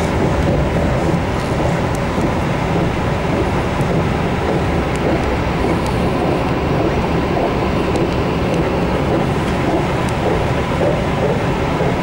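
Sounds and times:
train rumbling at speed: 0.0 - 12.0.

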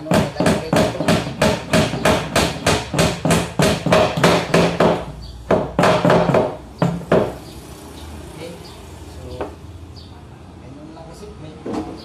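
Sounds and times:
hammer driving nails into wood: 0.0 - 7.4.

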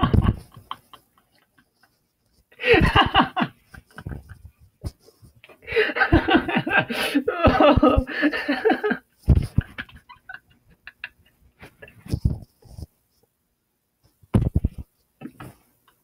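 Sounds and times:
man laughing hard: 0.0 - 1.6, 2.6 - 4.5, 5.6 - 12.1.

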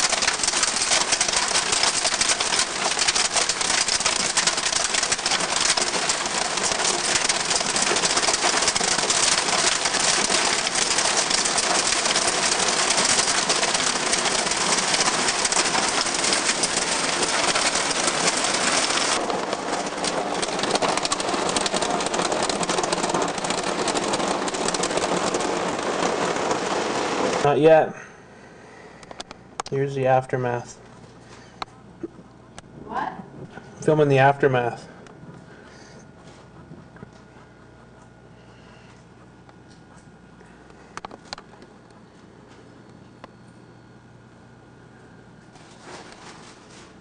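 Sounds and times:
hail clattering on roof: 0.0 - 27.6.

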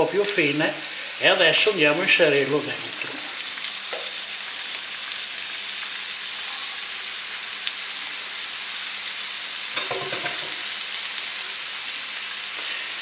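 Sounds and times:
meat sizzling in a frying pan: 0.0 - 13.0.

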